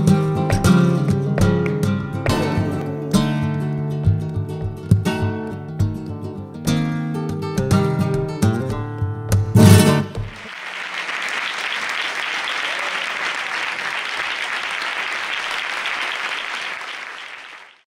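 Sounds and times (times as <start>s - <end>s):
flamenco guitar strummed chord: 9.4s - 10.4s
audience applauding: 10.3s - 17.9s.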